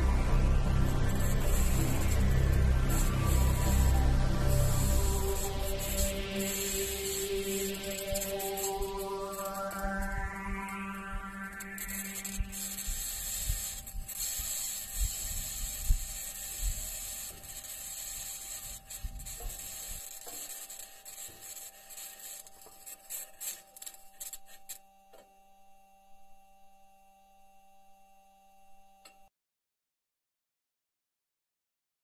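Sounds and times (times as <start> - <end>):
low rumbling: 0.0 - 13.1.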